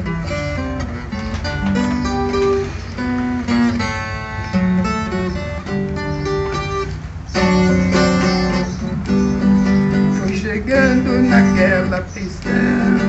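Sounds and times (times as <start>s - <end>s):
guitar strummed in chords: 0.0s - 13.0s
man singing: 10.2s - 13.0s.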